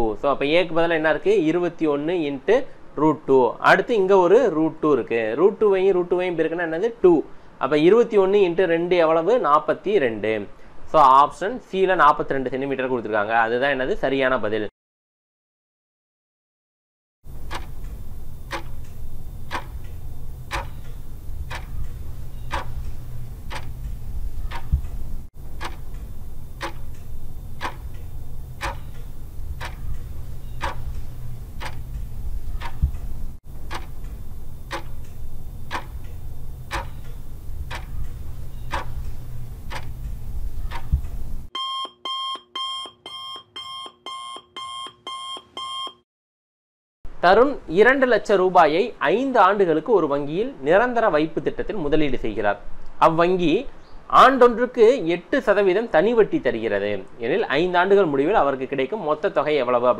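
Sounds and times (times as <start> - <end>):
clock ticking: 17.3 - 41.5
alarm clock beeping: 17.4 - 24.8, 25.6 - 32.9, 33.6 - 40.0, 40.7 - 46.0
low rumble: 17.7 - 41.5.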